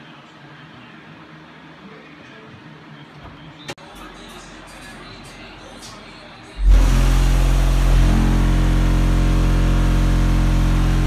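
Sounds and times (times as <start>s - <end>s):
loud low bass tone from subwoofers: 6.6s - 11.0s.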